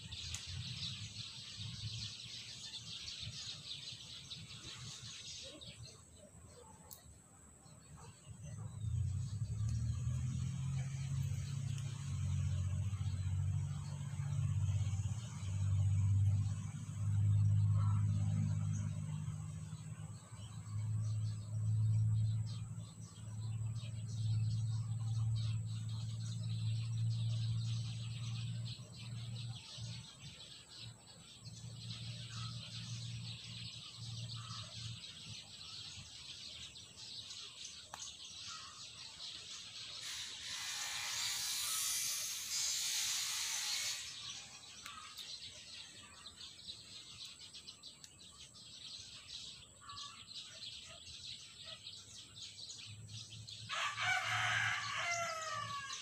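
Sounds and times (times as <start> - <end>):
rooster crowing: 53.7 - 56.0.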